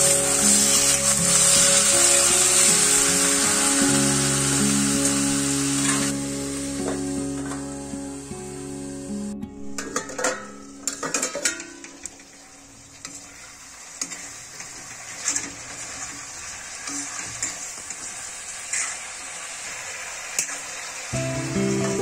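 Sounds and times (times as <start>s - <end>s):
chicken and onions sizzling: 0.0s - 22.0s
metal lid clinking: 9.8s - 12.2s.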